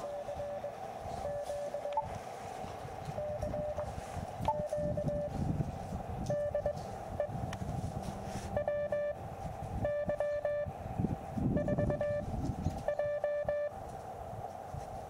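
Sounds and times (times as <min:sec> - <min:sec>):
morse code tone: 0:00.0 - 0:02.1, 0:03.2 - 0:03.9, 0:04.5 - 0:05.3, 0:06.3 - 0:07.4, 0:08.5 - 0:09.2, 0:09.8 - 0:10.7, 0:11.5 - 0:13.7
low wind rumble: 0:00.0 - 0:15.0.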